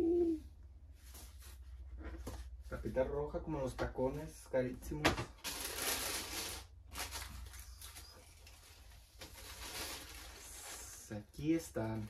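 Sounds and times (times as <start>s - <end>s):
tissue paper rustling: 5.4s - 11.2s.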